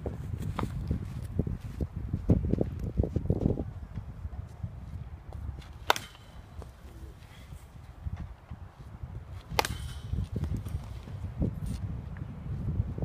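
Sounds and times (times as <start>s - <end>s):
wind rumble on microphone: 0.0s - 13.0s
wooden bat hitting baseball: 5.6s - 8.3s, 9.4s - 11.1s.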